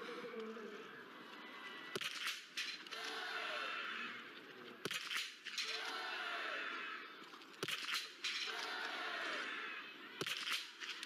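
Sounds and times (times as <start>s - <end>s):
crowd noise: 0.0s - 11.0s
sharp rifle shots: 2.0s - 2.6s, 4.8s - 5.7s, 7.6s - 8.2s, 10.2s - 11.0s.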